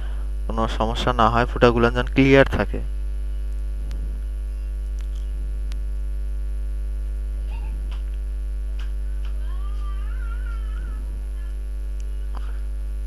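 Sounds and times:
electrical mains hum: 0.0s - 13.0s
faint wavering cry: 9.5s - 11.6s.

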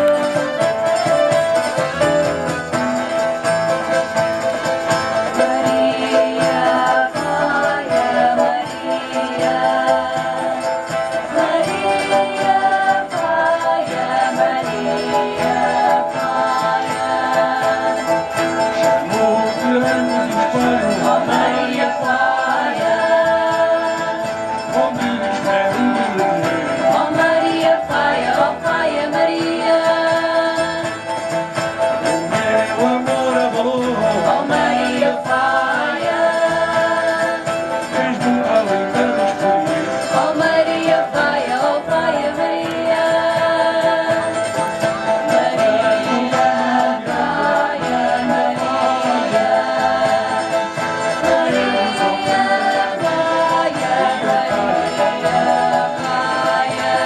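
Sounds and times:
guitars: 0.0s - 57.0s
keyboard: 0.0s - 57.0s
violin: 0.0s - 57.0s.

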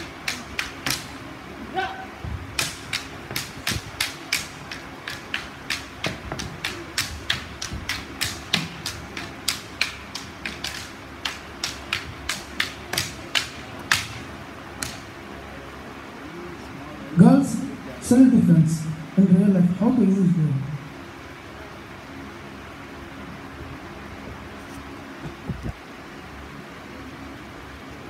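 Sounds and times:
wooden staffs clacking: 0.0s - 15.2s.

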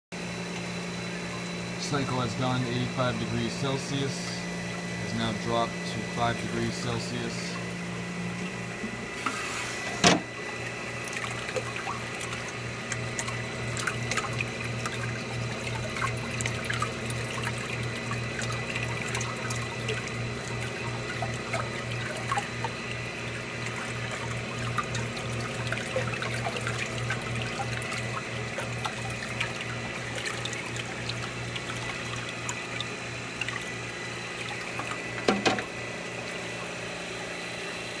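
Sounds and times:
pulsing machine hum: 0.2s - 38.0s
liquid churning: 8.4s - 37.5s.

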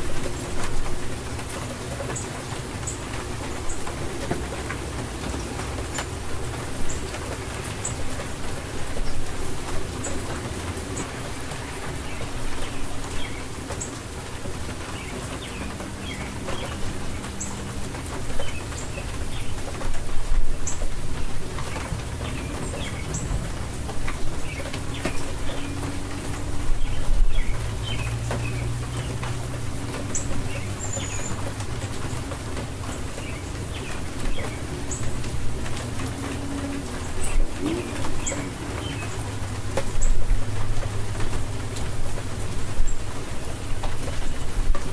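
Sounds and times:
birds chirping: 0.0s - 42.0s
steady rain falling: 0.0s - 44.9s
birds cooing: 21.6s - 41.8s.

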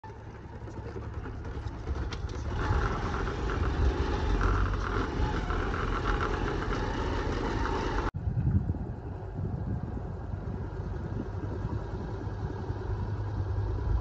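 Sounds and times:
diesel engine of backhoe driving: 0.0s - 8.2s, 9.0s - 14.0s.

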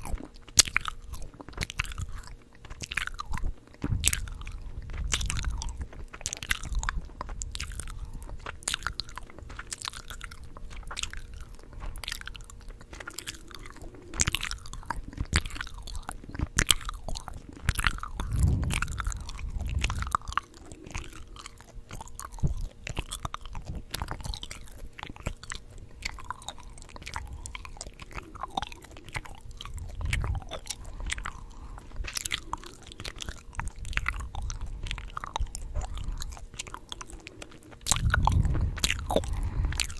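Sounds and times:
gum chewing mouth sounds: 0.0s - 39.9s
low thuds: 3.8s - 7.8s, 17.9s - 21.2s, 37.8s - 39.9s.

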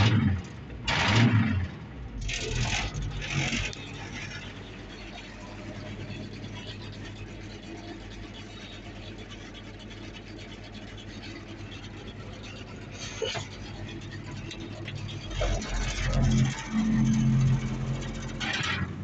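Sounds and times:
engine idling: 0.0s - 19.0s.

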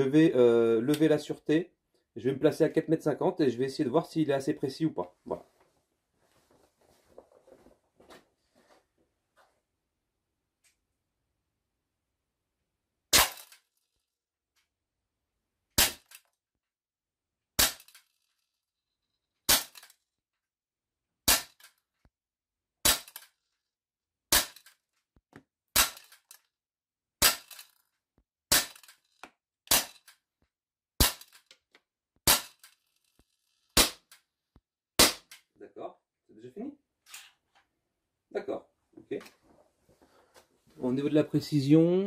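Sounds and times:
air pistol shots: 13.1s - 13.6s, 15.8s - 16.2s, 17.6s - 18.0s, 19.5s - 19.9s, 21.3s - 21.7s, 22.8s - 23.2s, 24.3s - 24.7s, 25.8s - 26.2s, 27.2s - 27.6s, 28.5s - 28.9s, 29.7s - 30.1s, 31.0s - 31.4s, 32.3s - 32.7s, 33.8s - 34.2s, 35.0s - 35.4s.

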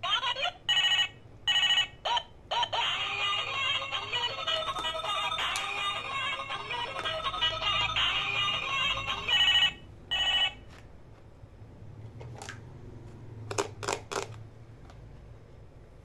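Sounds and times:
toy telephone electronic tune: 0.7s - 10.6s
short electronic ring tones: 4.6s - 10.6s
plastic toys clicking on hard surface: 13.5s - 14.4s.

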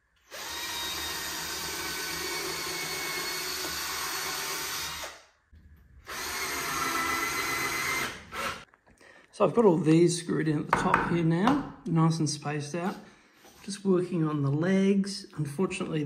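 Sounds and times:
cordless drill driving screws: 0.2s - 5.2s, 6.0s - 8.7s.

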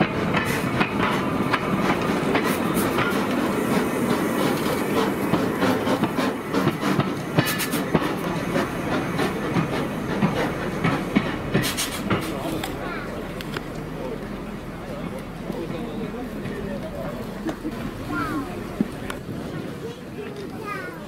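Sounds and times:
steam hissing: 0.0s - 12.6s
train wheels clattering on rails: 0.0s - 21.0s.

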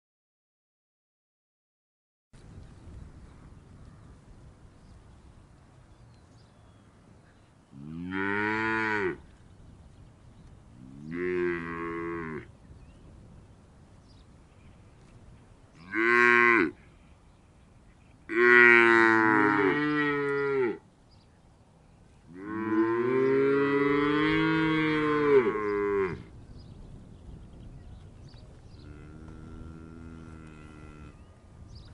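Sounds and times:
cows mooing: 7.8s - 9.2s, 15.8s - 16.8s, 18.3s - 20.8s, 22.3s - 26.2s, 28.8s - 31.2s.

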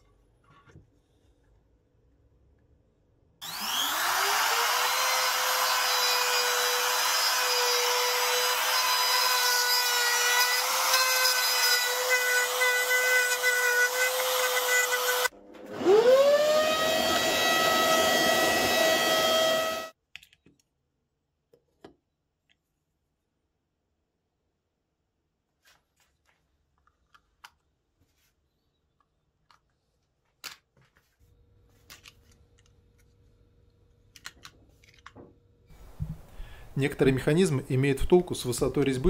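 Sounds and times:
router whining while cutting wood: 3.4s - 20.0s.

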